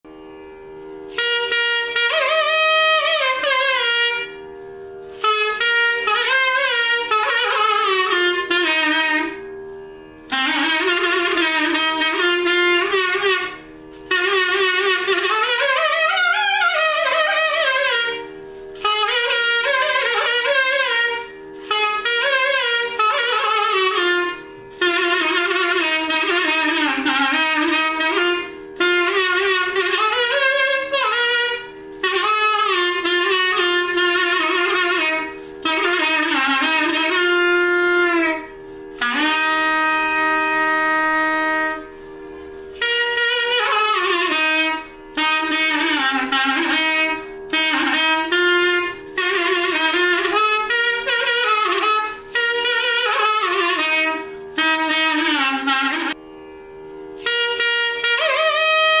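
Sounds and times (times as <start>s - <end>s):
reed wind instrument melody: 0.0s - 59.0s.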